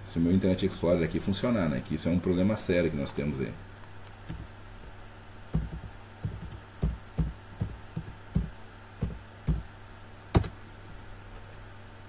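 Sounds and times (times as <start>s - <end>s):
steady low hum: 0.0s - 12.0s
keyboard keystrokes: 4.3s - 4.5s, 5.6s - 9.6s, 10.4s - 10.6s.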